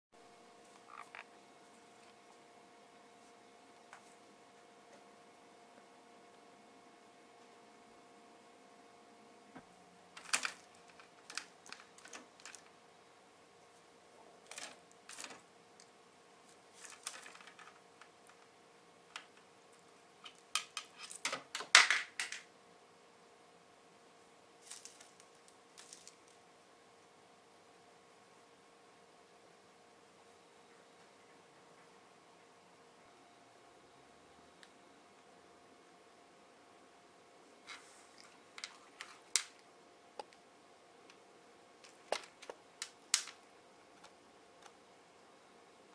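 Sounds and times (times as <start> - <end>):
toy clattering on wire shelf: 10.2 - 12.7, 20.3 - 22.5.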